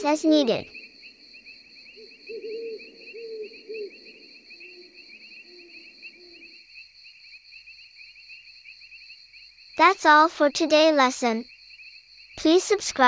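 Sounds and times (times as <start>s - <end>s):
bird hooting low notes: 0.0s - 6.6s
crickets chirping: 0.0s - 13.0s.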